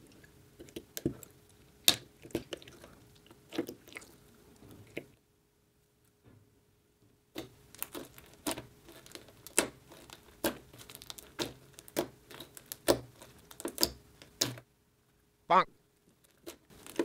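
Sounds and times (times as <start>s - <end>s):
slime crackling and squelching: 0.0s - 5.1s, 7.4s - 14.6s, 16.0s - 17.0s.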